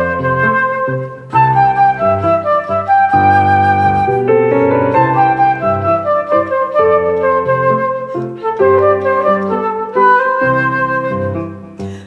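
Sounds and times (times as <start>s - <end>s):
flute playing pop melody: 0.0s - 11.8s
piano chords: 0.0s - 12.0s.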